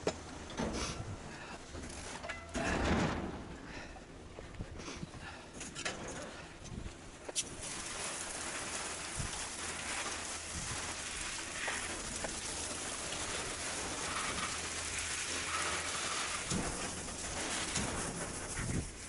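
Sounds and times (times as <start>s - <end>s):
hose spraying water on metal: 7.3s - 19.0s.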